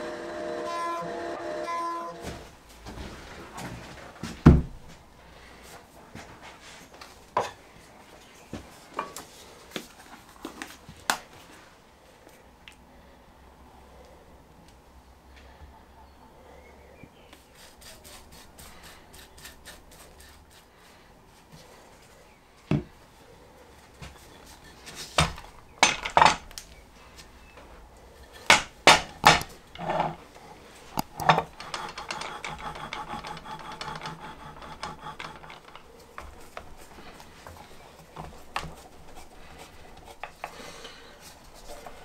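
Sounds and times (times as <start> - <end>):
wood rubbing: 0.0 - 4.0, 17.3 - 22.2, 23.7 - 42.0
wooden knocks: 28.4 - 30.2
metal clamps clanking: 30.9 - 36.4.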